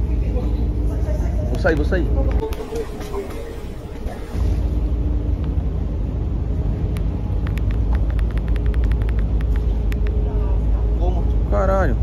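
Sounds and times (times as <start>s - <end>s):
steady low rumble: 0.0s - 12.0s
sharp clicks: 6.9s - 10.2s.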